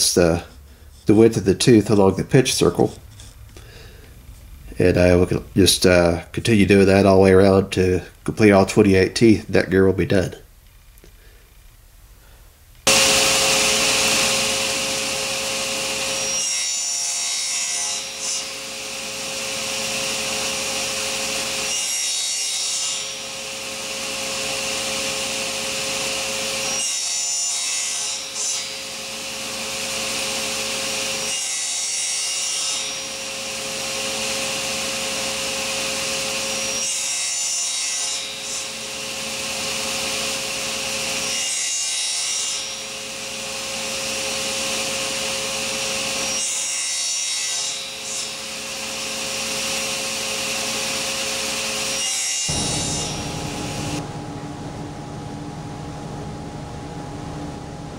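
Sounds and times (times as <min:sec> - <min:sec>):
table saw cutting wood: 0:00.0 - 0:03.9, 0:12.8 - 0:54.3.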